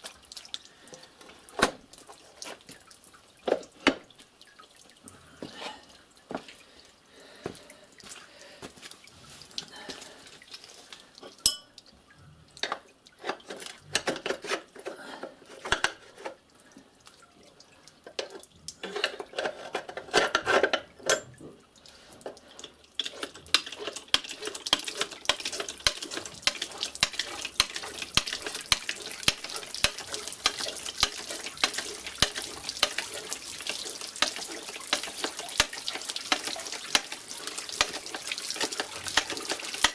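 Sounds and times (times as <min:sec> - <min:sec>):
water dripping and running: 0:00.0 - 0:39.9.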